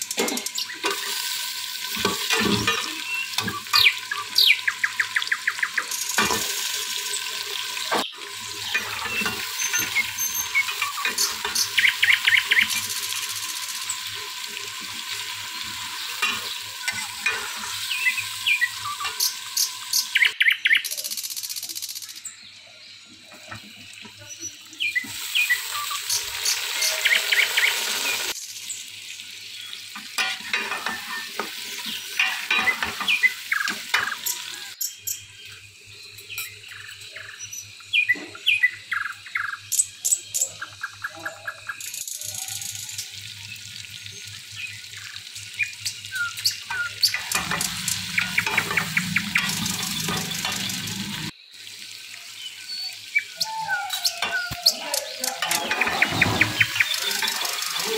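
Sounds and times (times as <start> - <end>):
food sizzling in hot oil: 0.0 - 41.0, 41.6 - 57.9
metal spatula scraping a pot: 30.2 - 33.2, 46.7 - 51.3.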